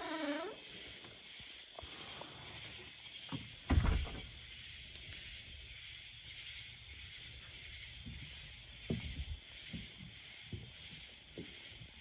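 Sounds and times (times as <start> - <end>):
steady high hiss: 0.0 - 12.0
footsteps on wooden deck: 7.5 - 12.0.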